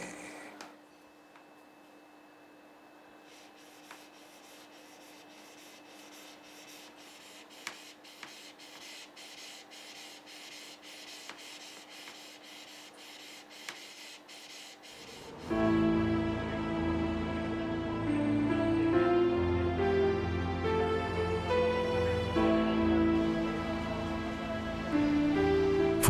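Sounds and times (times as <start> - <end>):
faint steady hum: 0.0 - 15.6
polishing stone scraping blade: 3.3 - 15.3.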